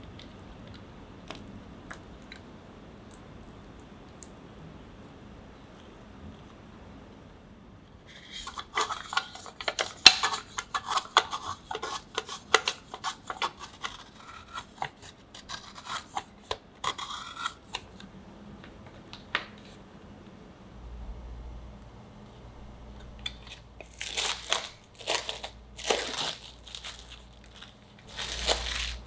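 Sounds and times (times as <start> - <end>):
chocolate grating on metal grater: 8.1 - 17.9, 28.1 - 29.0.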